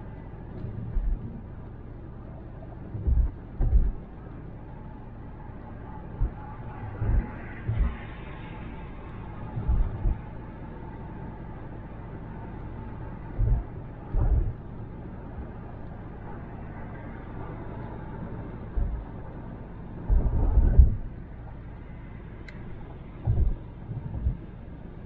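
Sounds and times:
road and tyre noise: 0:00.0 - 0:25.0
low thumps: 0:18.7 - 0:19.2, 0:20.1 - 0:21.1, 0:23.2 - 0:24.5.

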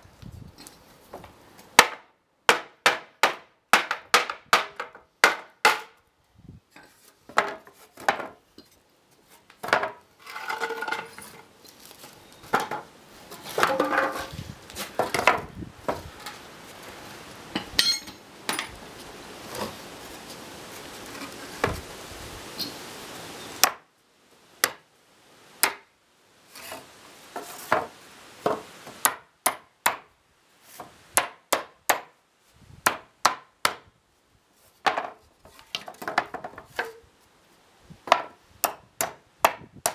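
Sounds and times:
hammer striking wooden boards: 0:01.8 - 0:06.0, 0:23.6 - 0:23.8, 0:27.7 - 0:30.1, 0:31.2 - 0:32.1, 0:32.8 - 0:33.9, 0:38.1 - 0:39.9
loose boards clattering: 0:09.6 - 0:11.4, 0:12.5 - 0:16.4.

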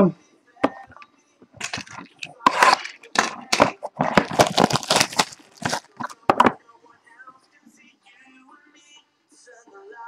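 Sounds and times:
plastic shrink wrap tearing: 0:01.6 - 0:06.2.

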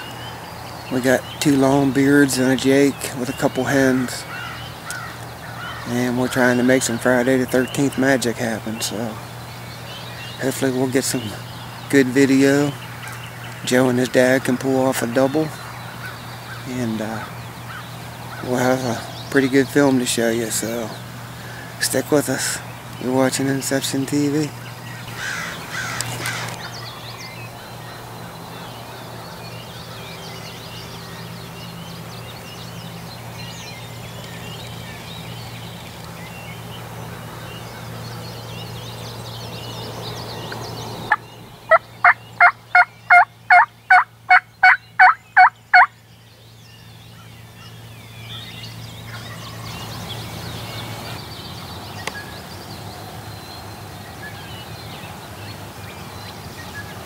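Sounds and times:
steady low hum: 0:00.0 - 0:57.0
turkey calling: 0:02.3 - 0:31.6, 0:41.1 - 0:45.9.

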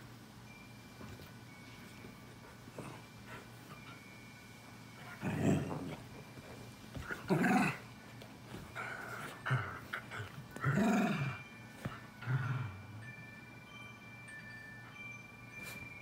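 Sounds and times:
dogs growling and play-fighting: 0:02.3 - 0:04.1, 0:04.9 - 0:13.2.

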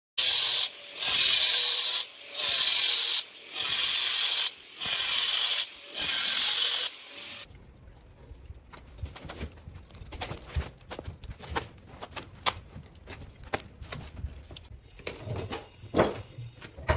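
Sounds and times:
angle grinder cutting concrete: 0:00.2 - 0:07.5.

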